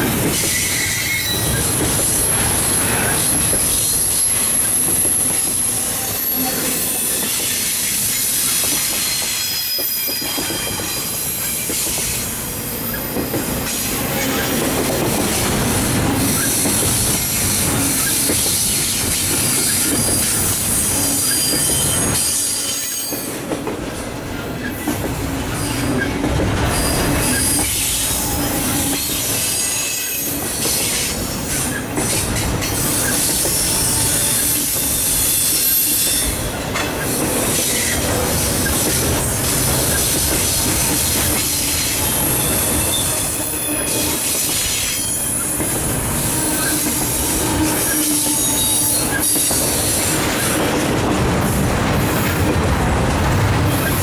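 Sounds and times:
train wheels rumbling on rail: 0.0s - 54.0s
high-pitched wheel squeal: 6.1s - 11.6s, 41.7s - 49.6s.

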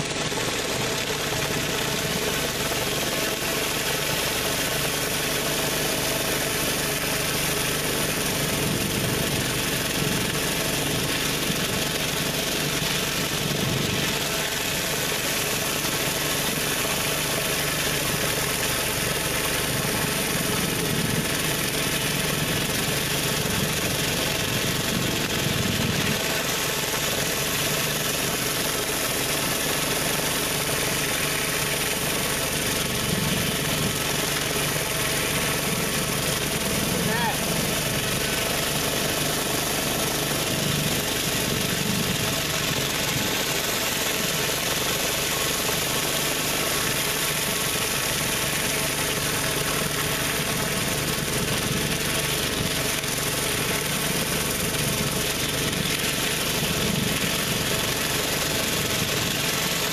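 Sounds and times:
high-pressure water spraying: 0.0s - 59.9s
pressure washer engine running: 0.0s - 59.9s.

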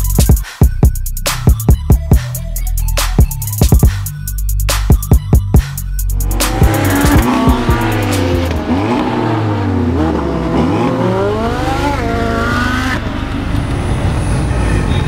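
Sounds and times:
high-revving car engines: 6.1s - 15.0s.

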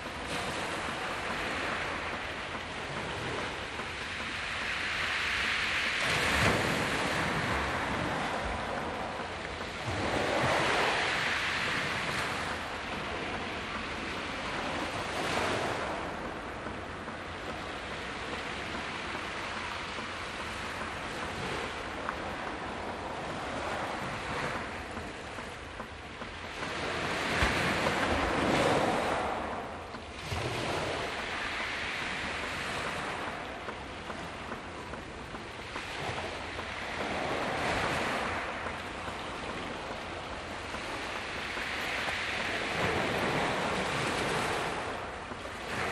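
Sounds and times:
sea waves breaking on beach: 0.0s - 45.9s.

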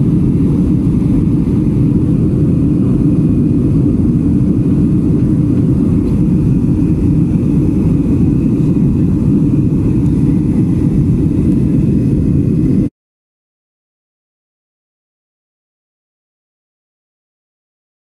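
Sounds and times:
airliner cabin noise: 0.0s - 12.9s.

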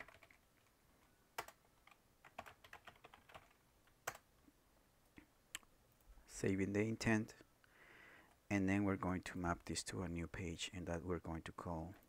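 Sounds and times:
keyboard typing: 0.0s - 0.7s, 1.4s - 4.3s.

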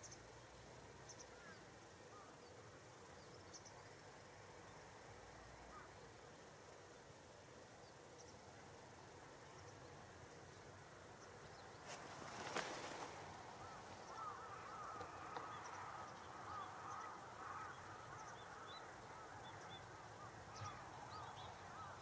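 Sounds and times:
rush of birds taking off: 11.8s - 15.4s
crows cawing: 13.6s - 22.0s.

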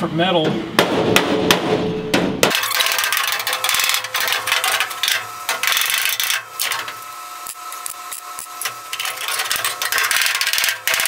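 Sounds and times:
hammer tapping sheet metal: 0.4s - 6.9s, 8.6s - 11.0s.

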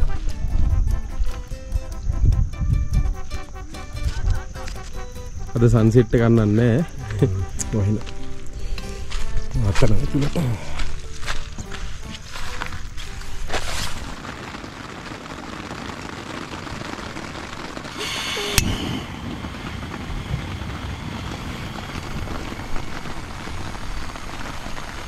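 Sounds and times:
rain falling on tent: 0.0s - 0.5s, 5.6s - 25.0s
gas hissing from burner: 17.2s - 25.0s.

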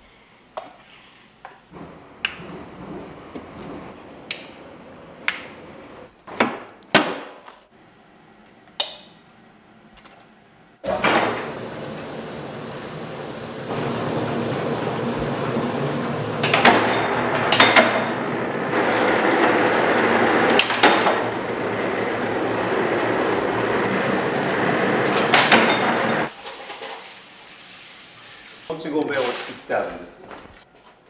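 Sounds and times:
machine running: 10.8s - 26.3s.

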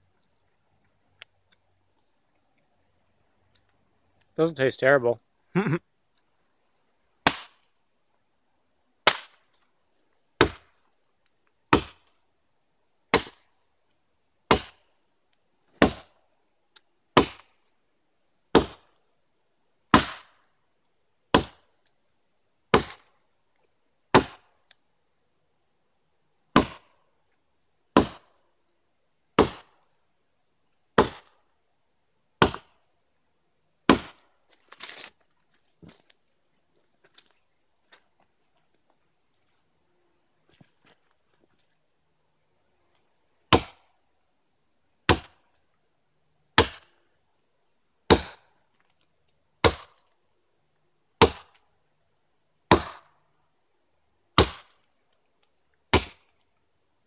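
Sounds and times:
hatchet chopping into log: 10.4s - 10.7s, 11.7s - 12.0s, 13.1s - 13.4s, 14.5s - 14.8s, 15.8s - 16.1s, 17.2s - 17.5s, 18.5s - 18.9s, 19.9s - 20.3s, 21.3s - 21.6s, 22.7s - 23.1s, 24.1s - 24.4s, 26.6s - 26.8s, 28.0s - 28.2s, 29.4s - 29.7s, 31.0s - 31.3s, 32.4s - 32.7s, 33.9s - 34.2s, 43.5s - 43.8s, 45.1s - 45.4s, 46.6s - 46.8s, 48.1s - 48.4s, 49.6s - 50.0s, 51.2s - 51.6s, 52.7s - 53.1s, 54.4s - 54.7s, 55.9s - 56.2s.

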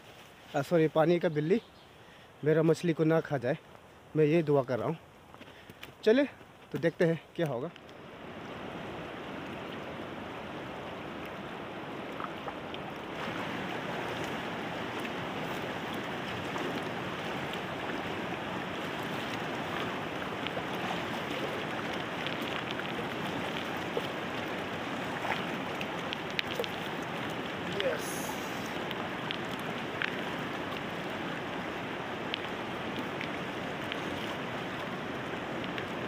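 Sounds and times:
river water rushing over rocks: 7.0s - 36.0s.

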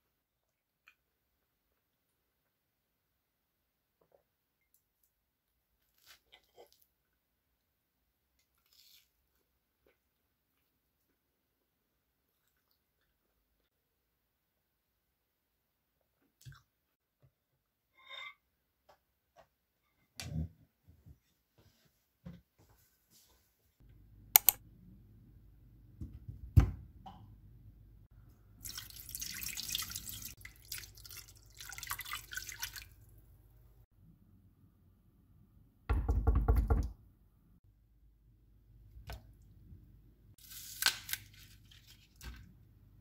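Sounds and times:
water pouring into a pot: 28.6s - 33.1s
green onion snapping: 40.5s - 41.3s.

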